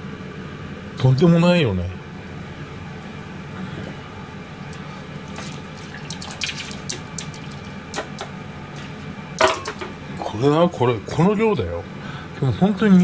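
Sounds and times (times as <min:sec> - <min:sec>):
steady low hum: 0:00.0 - 0:13.0
wet food plopping into bowl: 0:05.2 - 0:10.0.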